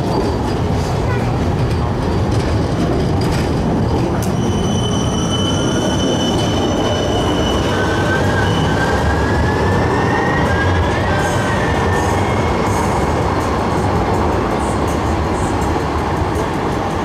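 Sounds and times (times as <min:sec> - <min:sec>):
train wheels rumbling on rails: 0:00.0 - 0:17.0
high wheel squealing: 0:04.2 - 0:13.0.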